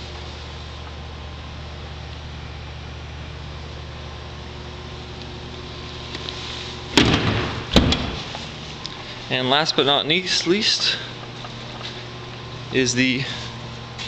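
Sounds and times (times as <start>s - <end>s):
car engine idling: 0.0s - 14.0s
car hood slamming shut: 6.9s - 8.3s.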